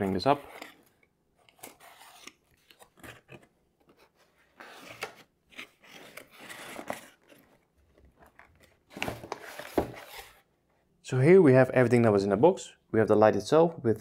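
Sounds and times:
cardboard scraping and rustling: 1.4 - 10.4.

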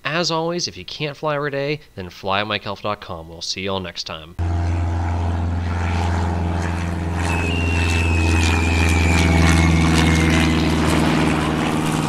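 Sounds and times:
high whine falling in pitch: 4.4 - 12.0
propeller airplane engine droning: 4.4 - 12.0.

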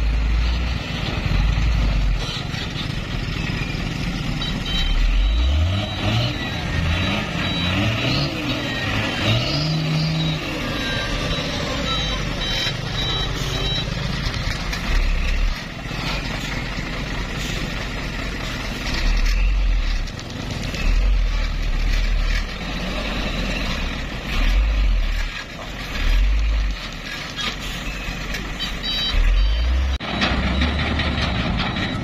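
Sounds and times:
diesel truck engine surging: 0.0 - 32.0
reversing alarm beeping: 3.2 - 16.2, 27.8 - 32.0.

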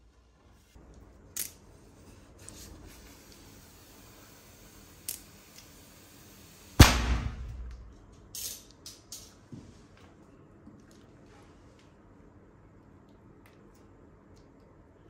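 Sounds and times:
balloon bursting with a bang: 6.8 - 7.7.

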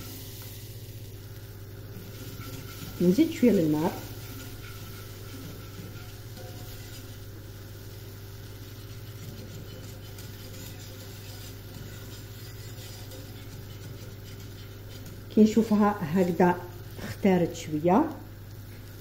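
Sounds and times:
whisk scraping in saucepan: 2.0 - 15.8.

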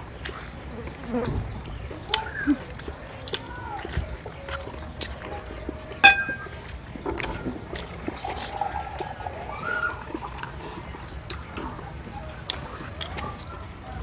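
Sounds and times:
wet eating sounds: 0.1 - 14.0
utensil clinking on dish: 6.0 - 6.5.

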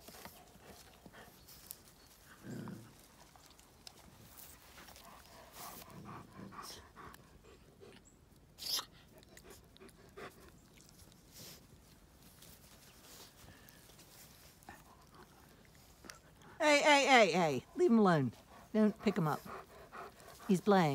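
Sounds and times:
dogs chewing and scuffling: 0.0 - 16.6.

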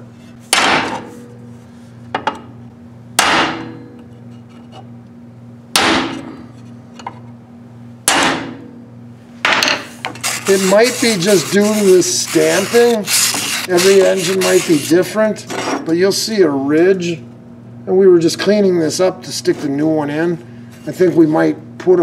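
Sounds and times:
hammer striking metal punch: 0.5 - 1.1, 3.2 - 4.0, 5.7 - 6.3, 8.0 - 8.7.

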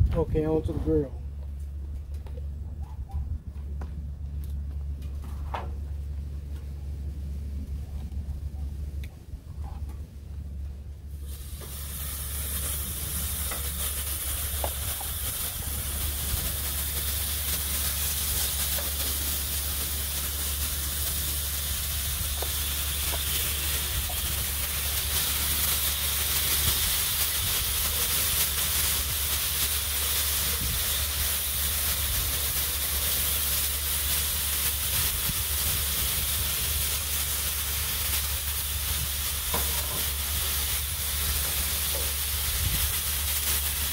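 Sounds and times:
low hum: 0.0 - 33.5
meat sizzling on a griddle: 11.2 - 43.9.

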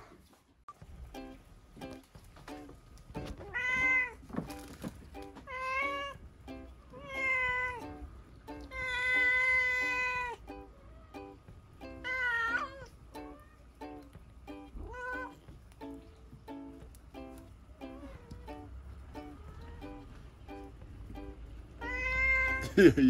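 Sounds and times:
light plucked background music: 0.7 - 23.0
cat meowing: 3.4 - 4.3, 5.4 - 6.2, 6.9 - 11.4, 12.0 - 13.9, 14.8 - 15.5, 17.9 - 20.1, 21.7 - 22.7.

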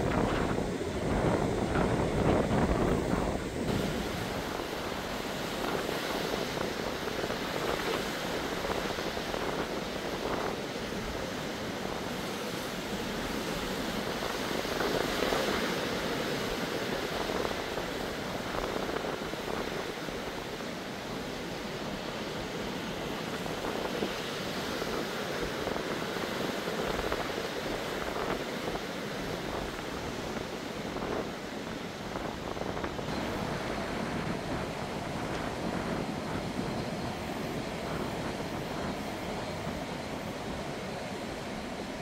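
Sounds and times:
sea surf breaking over rocks: 0.0 - 42.0
wind rumble on microphone: 0.0 - 42.0.

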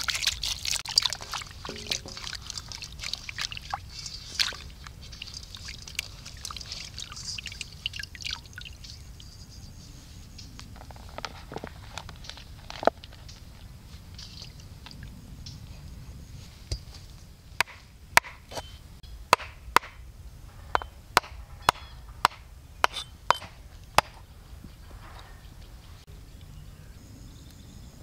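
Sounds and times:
cleaver chopping on wooden block: 17.6 - 18.7, 19.3 - 20.0, 20.8 - 24.2.

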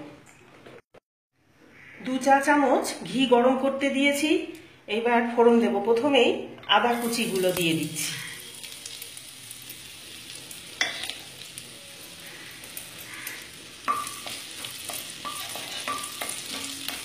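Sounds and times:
ginger sizzling in hot fat: 6.9 - 17.0
spatula tapping and scraping pan: 13.8 - 17.0.

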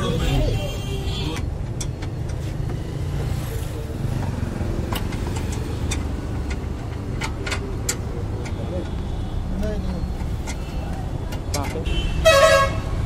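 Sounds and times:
sharp metal clicks: 1.4 - 2.8, 4.2 - 9.0.

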